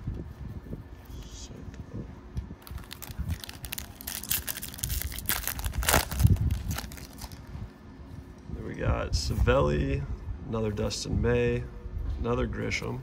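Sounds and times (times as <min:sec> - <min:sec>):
foil wrapper crinkling and tearing: 0:02.6 - 0:07.5.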